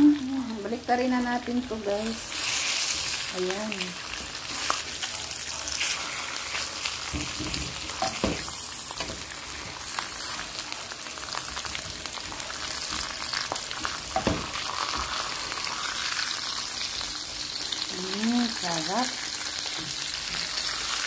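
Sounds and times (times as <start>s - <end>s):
meat sizzling in frying pan: 0.0s - 21.0s.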